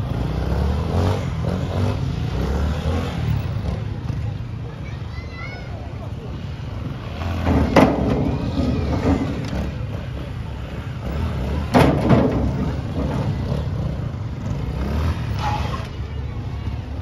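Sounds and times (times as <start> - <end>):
motorcycles running at low revs: 0.0 - 4.8, 6.0 - 17.0
loud thump: 11.7 - 13.3.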